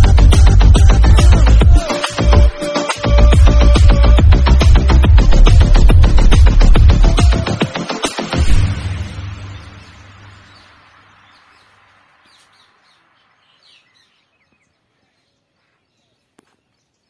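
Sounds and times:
devotional song: 0.0s - 10.2s
outdoor ambience: 0.0s - 17.0s
small birds chirping: 9.1s - 17.0s.

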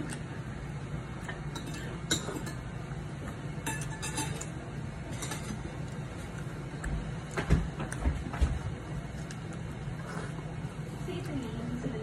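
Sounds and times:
low steady hum: 0.0s - 12.0s
dishes clinking: 1.5s - 2.7s, 3.6s - 5.7s.

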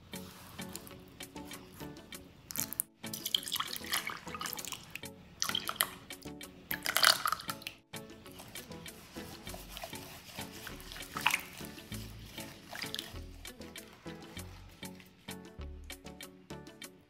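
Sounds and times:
light background music: 0.0s - 17.0s
liquid trickling into a bowl: 3.1s - 6.1s, 6.7s - 7.8s, 10.9s - 11.8s, 12.7s - 13.1s.

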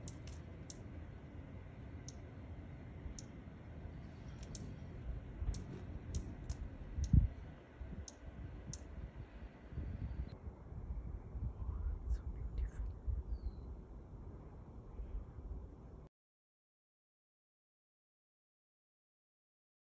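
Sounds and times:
hummingbird chip notes: 0.0s - 10.3s
low steady rumble: 0.0s - 16.1s.

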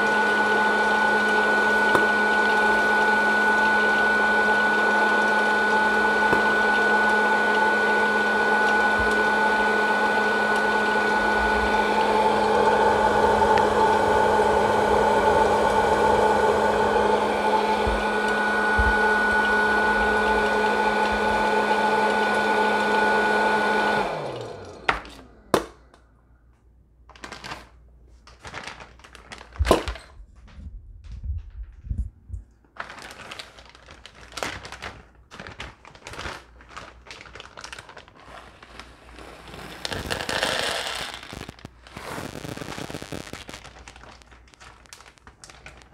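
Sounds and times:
popcorn popper fan whirring: 0.0s - 26.1s, 35.4s - 45.9s.

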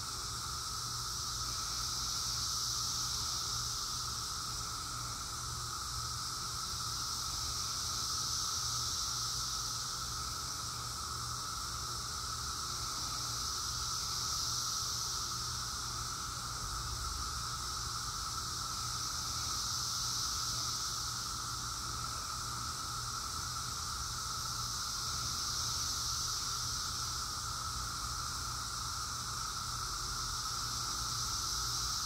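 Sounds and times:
cicadas buzzing: 0.0s - 32.0s.

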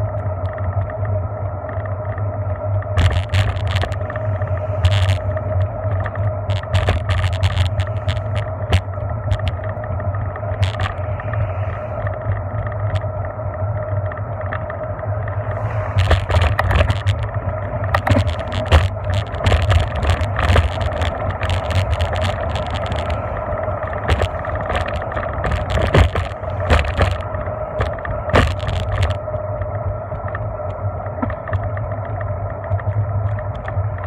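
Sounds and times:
constant hum: 0.0s - 34.0s
wind noise: 0.0s - 34.0s
sharp rattling clicks: 4.8s - 9.7s, 16.0s - 29.2s
car passing: 15.2s - 16.3s
tyre rumble: 15.4s - 29.2s.

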